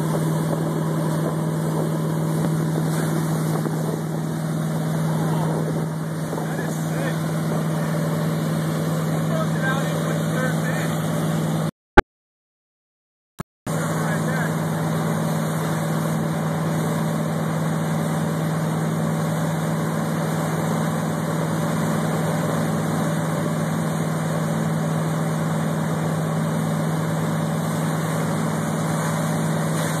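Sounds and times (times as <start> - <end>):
rush of churning wake: 0.0 - 11.5, 13.7 - 30.0
boat engine drone: 0.0 - 11.7, 13.7 - 30.0.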